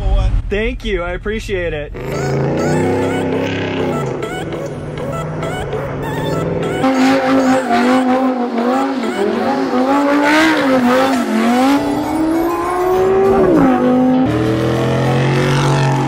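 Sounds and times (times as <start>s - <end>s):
car engine revving hard: 2.0s - 16.0s.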